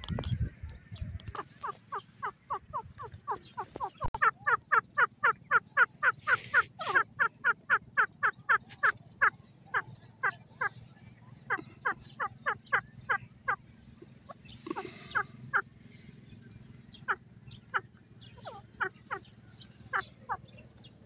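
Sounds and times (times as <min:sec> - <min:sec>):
francolin calling: 0:17.0 - 0:20.5.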